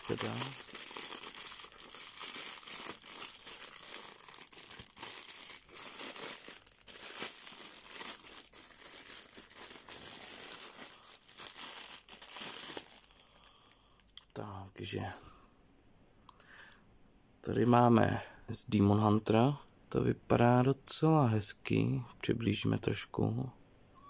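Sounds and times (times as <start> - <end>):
plastic wrapping crinkling: 0.0 - 14.2.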